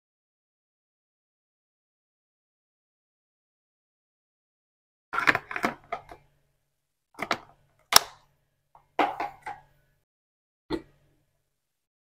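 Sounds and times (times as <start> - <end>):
plastic items clattering: 5.2 - 6.3.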